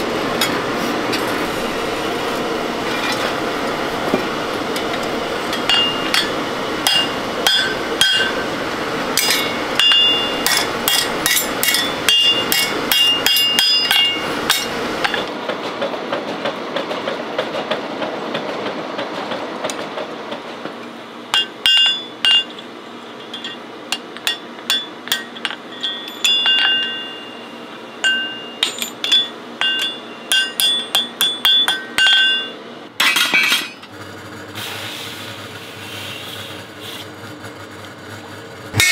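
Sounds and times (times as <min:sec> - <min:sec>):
hammer striking metal on anvil: 0:04.1 - 0:08.5, 0:09.1 - 0:15.3, 0:21.3 - 0:22.6, 0:23.3 - 0:33.8.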